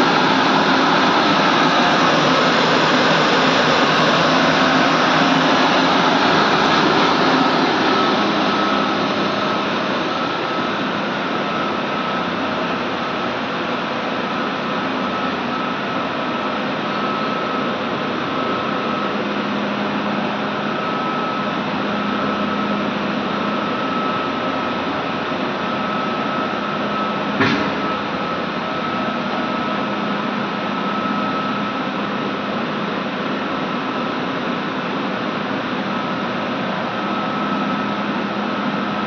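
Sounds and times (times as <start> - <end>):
faint high whine: 0.0 - 39.0
steam boiler plant roar: 0.0 - 39.0
sharp knock: 27.4 - 27.9.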